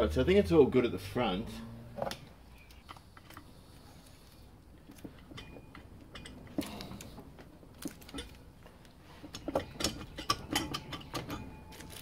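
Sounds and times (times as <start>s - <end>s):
metallic clinks and knocks: 4.8s - 8.6s, 9.2s - 12.0s.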